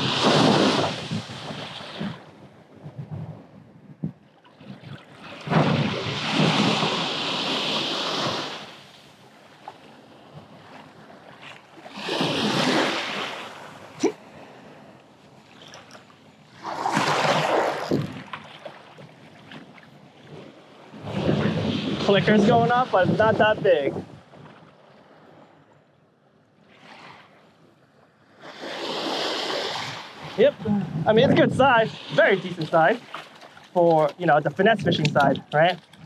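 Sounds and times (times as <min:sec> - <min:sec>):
surf waves washing on sand: 0:00.0 - 0:02.4, 0:04.6 - 0:14.9, 0:20.3 - 0:24.1, 0:28.4 - 0:36.0
wind on microphone: 0:00.0 - 0:08.8, 0:16.7 - 0:19.7, 0:20.3 - 0:24.7, 0:28.7 - 0:32.9, 0:34.1 - 0:36.0.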